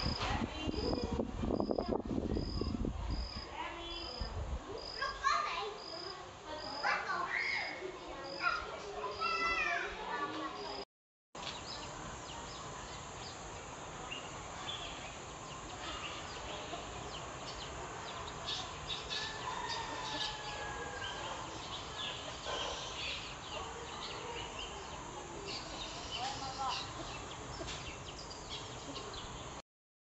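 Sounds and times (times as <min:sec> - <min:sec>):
birds chirping: 0:11.4 - 0:29.6
steady background hiss: 0:11.4 - 0:29.6.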